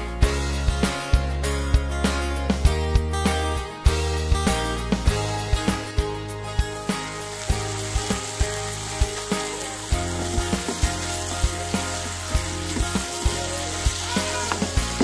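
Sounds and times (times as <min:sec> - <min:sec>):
chicken sizzling in a pan: 0:06.7 - 0:15.0.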